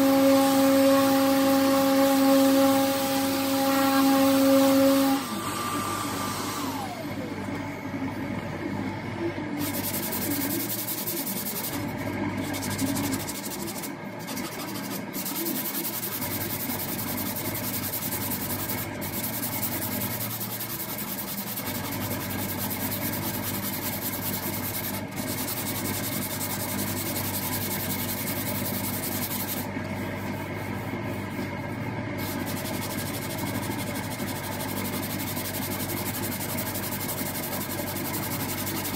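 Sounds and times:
sanding car bodywork: 0:00.0 - 0:07.0, 0:09.6 - 0:38.9
power tool winding down: 0:00.7 - 0:07.4.

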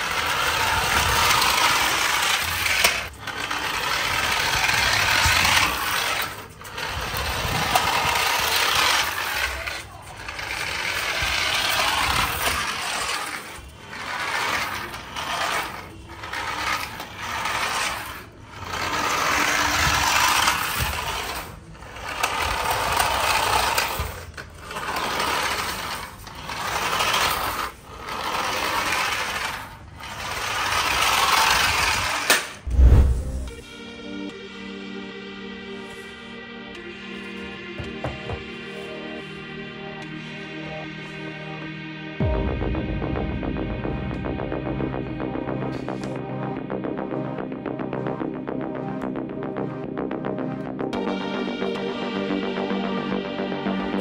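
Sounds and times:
toy car motor whirring: 0:00.0 - 0:33.6.

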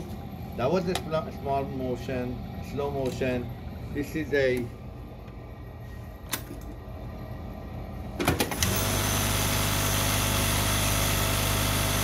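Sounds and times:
sewing machine hum: 0:08.5 - 0:12.0.

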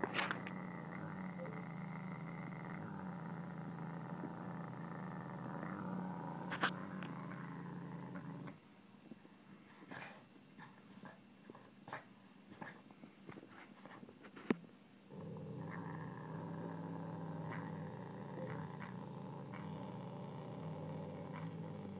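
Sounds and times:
cat growling: 0:00.0 - 0:08.6, 0:15.1 - 0:21.9.

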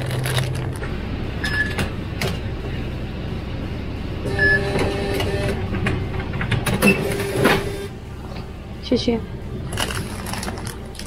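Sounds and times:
plastic-wrapped bread handling: 0:00.0 - 0:00.9, 0:09.7 - 0:11.0
steady low hum: 0:00.0 - 0:11.0.

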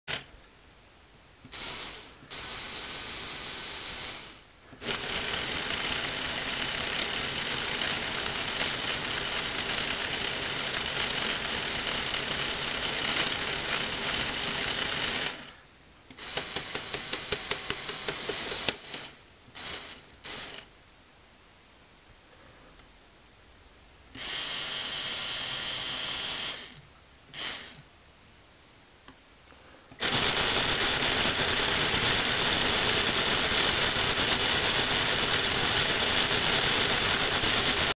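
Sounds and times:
motors driving plastic gears: 0:01.5 - 0:20.7, 0:24.2 - 0:27.9, 0:30.0 - 0:37.9
regular clicks: 0:16.1 - 0:20.7.

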